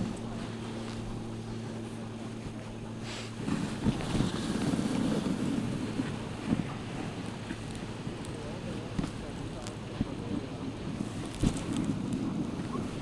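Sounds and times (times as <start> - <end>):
steady low hum: 0.0 - 13.0
wind buffeting microphone: 0.0 - 13.0
sled runners scraping snow: 3.0 - 7.7.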